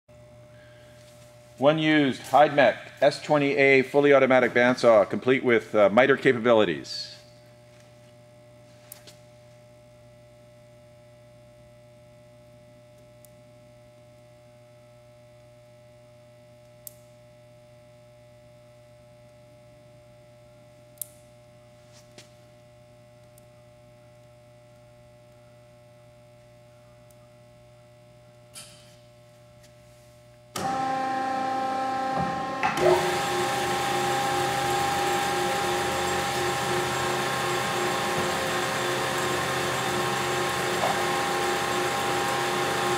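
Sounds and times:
low steady hum: 0.1s - 42.9s
bandsaw whirring: 30.6s - 42.9s.

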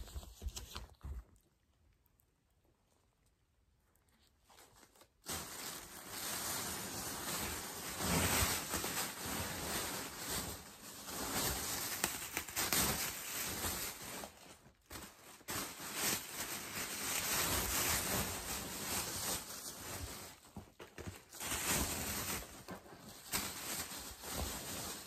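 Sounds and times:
plastic packaging rustling: 0.0s - 1.4s, 4.1s - 25.0s.

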